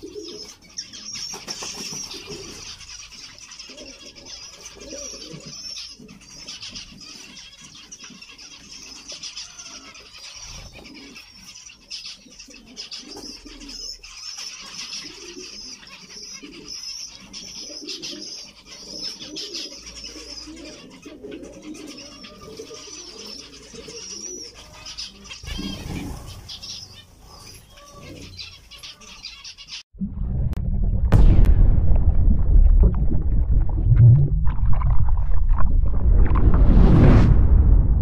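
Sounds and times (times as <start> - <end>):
low cooing calls: 0.0 - 2.8, 3.6 - 6.6, 12.3 - 29.3.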